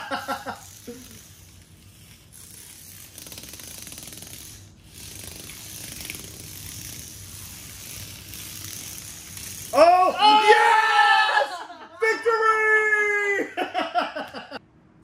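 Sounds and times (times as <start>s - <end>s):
toy car motors buzzing: 0.0s - 9.9s.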